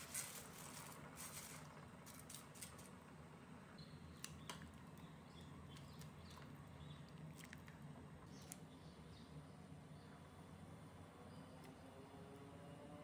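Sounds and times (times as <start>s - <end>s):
boiling water bubbling hiss: 0.0s - 8.4s.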